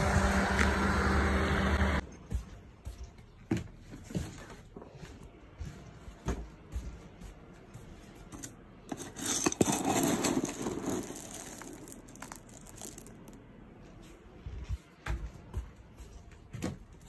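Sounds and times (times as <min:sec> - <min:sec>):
cat kibble rattling in plastic tub: 0:09.6 - 0:13.1.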